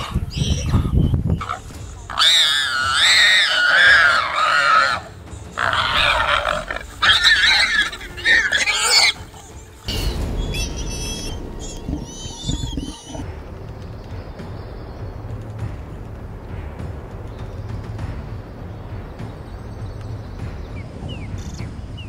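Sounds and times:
warthog squealing: 0.0s - 13.2s.

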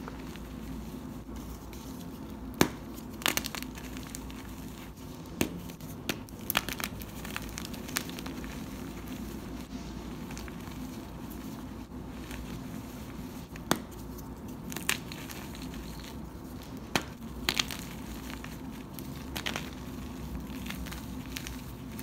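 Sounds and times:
hands crushing chalk blocks: 1.4s - 9.3s, 13.3s - 22.0s.

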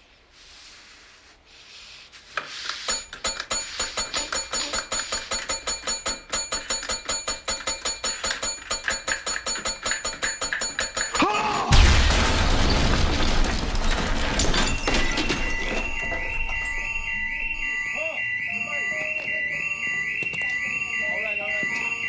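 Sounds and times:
small bell dinging rapidly: 2.9s - 11.5s
fire alarm beeping: 2.9s - 11.6s, 13.8s - 22.0s
bomb explosion: 11.7s - 14.6s
crumbling debris: 11.7s - 16.9s.

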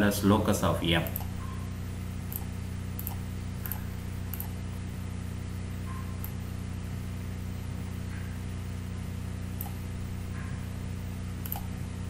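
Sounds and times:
low electrical hum: 0.0s - 12.0s
faint clicks: 11.4s - 11.7s.

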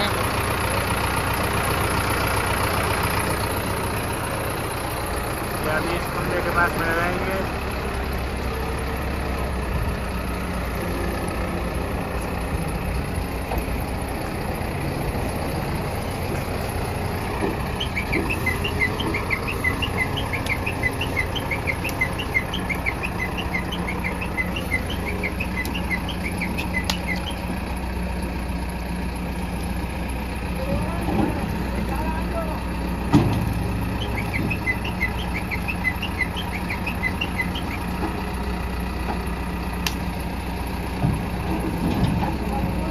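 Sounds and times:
diesel engine humming: 0.0s - 42.9s
bird chirping: 16.3s - 27.6s, 33.4s - 38.2s.

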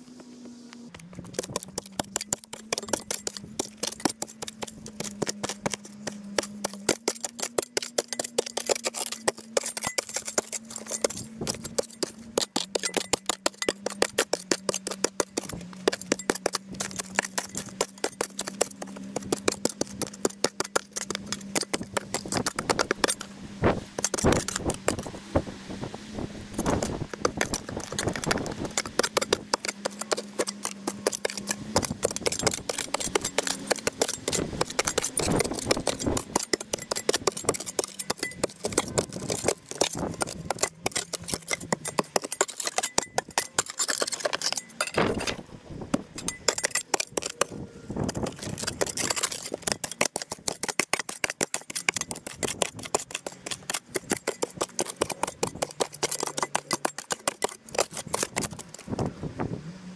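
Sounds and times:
shovel scraping soil: 0.9s - 25.4s, 26.2s - 59.1s.

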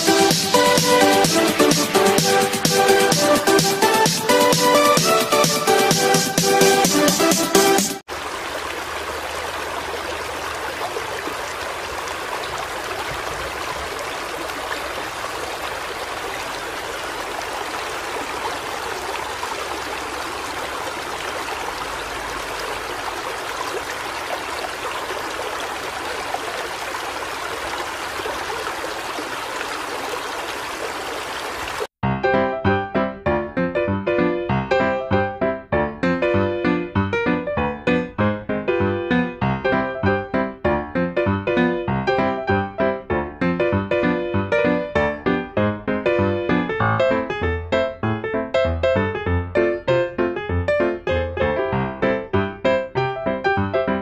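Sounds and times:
river water rushing and splashing: 8.0s - 31.9s.

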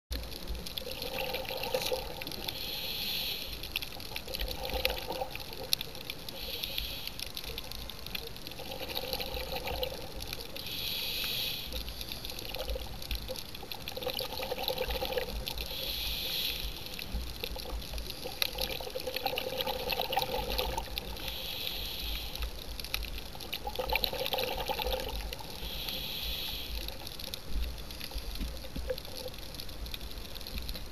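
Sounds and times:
bubbling exhalations underwater: 0.8s - 2.4s, 13.9s - 15.5s, 18.3s - 21.1s, 23.5s - 25.6s
regulator hiss on inhale: 1.4s - 5.2s, 6.0s - 13.4s, 14.8s - 18.9s, 19.6s - 23.2s, 23.9s - 28.9s.

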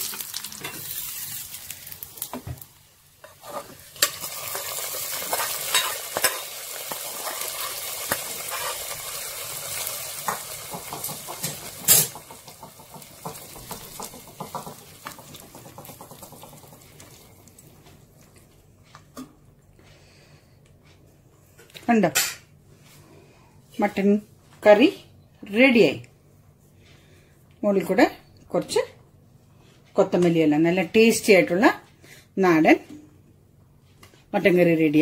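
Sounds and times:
hot oil sizzling: 0.0s - 17.7s
metal spoon scraping pans: 3.2s - 9.0s.

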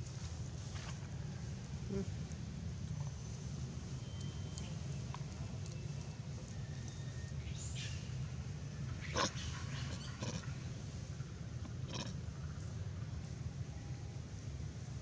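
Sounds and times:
animal calls: 9.0s - 10.6s, 11.9s - 12.2s.

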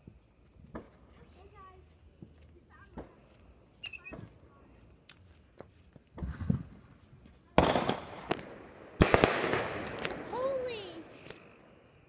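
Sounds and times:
fireworks popping and banging: 2.2s - 3.3s, 7.5s - 11.5s.

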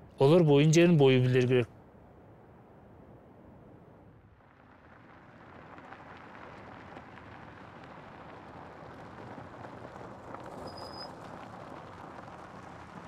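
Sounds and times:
vehicle on gravel road: 4.2s - 13.0s.

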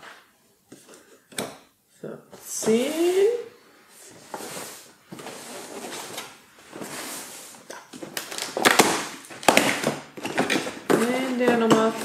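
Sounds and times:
cardboard rustling and scraping: 2.4s - 8.8s.

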